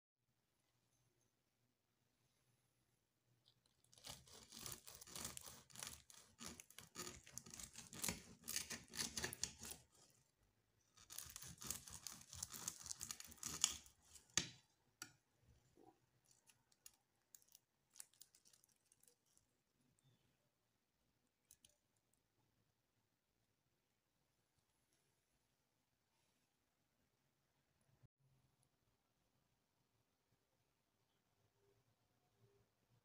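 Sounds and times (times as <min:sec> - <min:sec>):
pastry crackling and crunching: 0:03.3 - 0:15.0, 0:15.8 - 0:20.0
knife sawing through crispy pastry: 0:03.9 - 0:10.2, 0:10.9 - 0:14.4.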